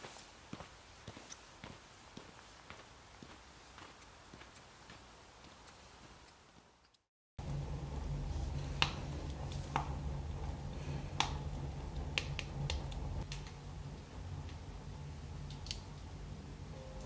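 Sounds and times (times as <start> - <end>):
wood fire crackling and popping: 7.4 - 16.1
low fire rumble: 7.4 - 16.8.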